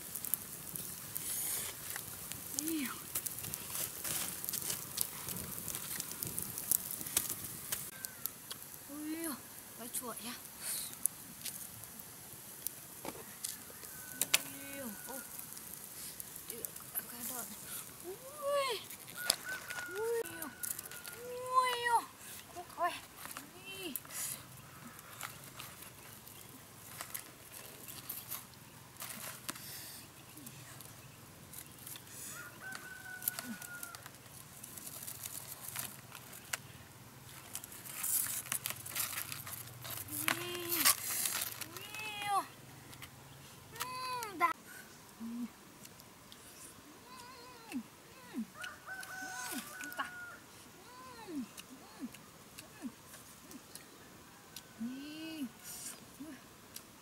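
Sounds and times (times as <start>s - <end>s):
sharp pops of fire: 0.0s - 8.9s, 15.2s - 21.9s
campfire crackling: 0.0s - 57.0s
rooster crowing: 13.2s - 15.4s, 19.1s - 21.3s, 32.2s - 34.2s, 48.5s - 50.5s.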